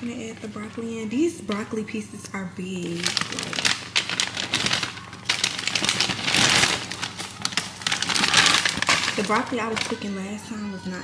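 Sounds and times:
plastic bag crinkling: 0:00.0 - 0:01.7, 0:02.7 - 0:10.8.

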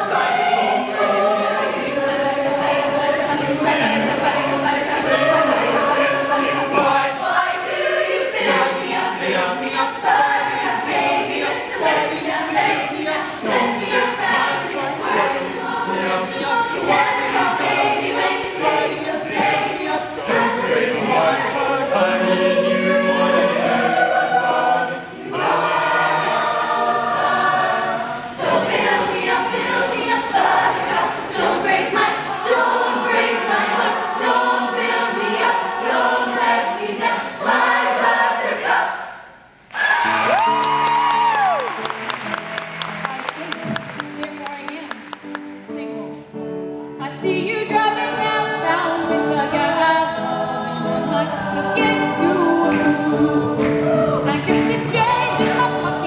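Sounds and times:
choir singing up-tempo: 0:00.0 - 0:40.2, 0:46.2 - 0:56.0.

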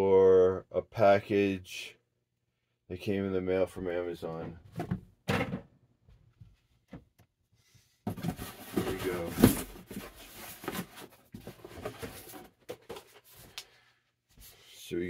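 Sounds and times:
packaging rustling and crinkling: 0:08.1 - 0:13.6.

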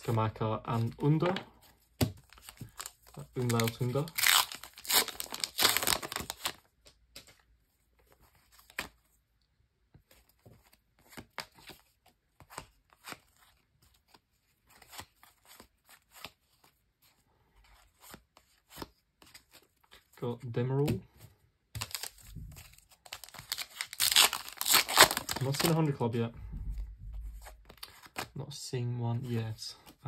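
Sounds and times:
foil wrapper crinkling: 0:02.3 - 0:06.6, 0:23.0 - 0:25.8.

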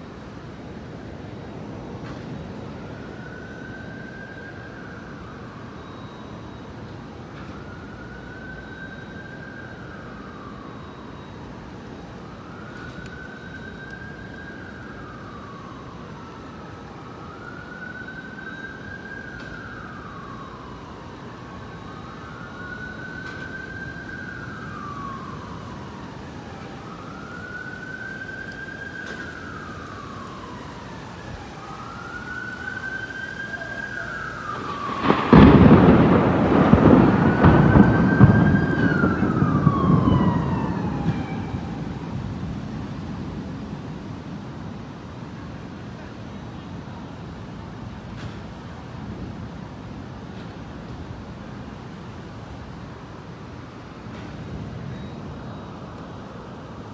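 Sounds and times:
siren wailing: 0:00.1 - 0:56.9
rain hiss: 0:18.2 - 0:56.9
thunder clap and rumble: 0:34.3 - 0:44.0.

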